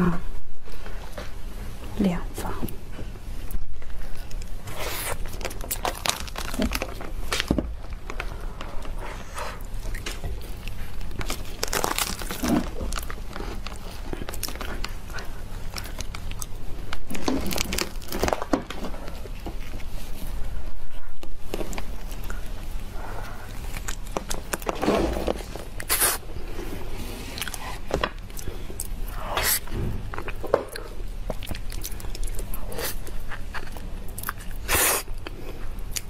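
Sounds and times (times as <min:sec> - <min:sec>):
fruit flesh tearing and crinkling: 0:04.2 - 0:08.2, 0:09.7 - 0:20.1.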